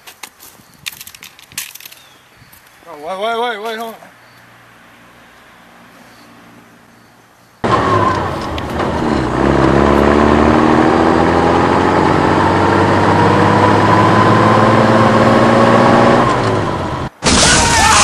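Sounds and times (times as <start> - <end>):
vehicle engine accelerating: 7.6 - 17.2.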